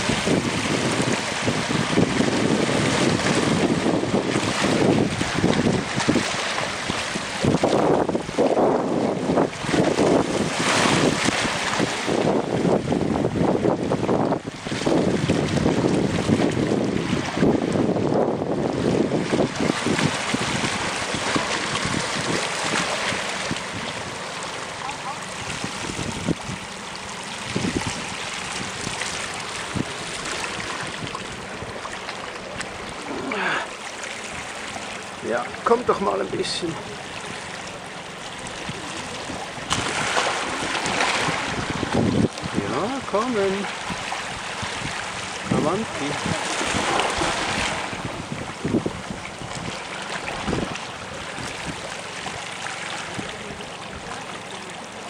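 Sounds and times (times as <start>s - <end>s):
wind buffeting microphone: 0.0s - 24.2s, 24.8s - 33.7s, 34.3s - 54.3s
sea water washing on rocks: 0.0s - 55.0s.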